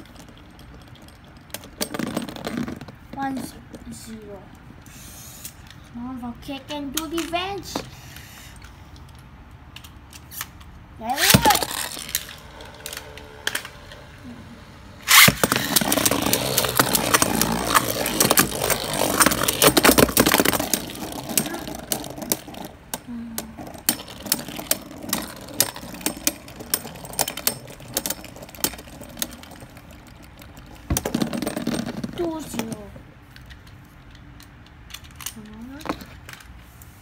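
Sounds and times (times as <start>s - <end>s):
spinning tops clashing clicks: 9.8s - 14.1s, 15.1s - 31.0s
spinning top landing crack: 10.2s - 14.2s, 15.0s - 32.1s
spinning tops whirring: 11.1s - 32.0s.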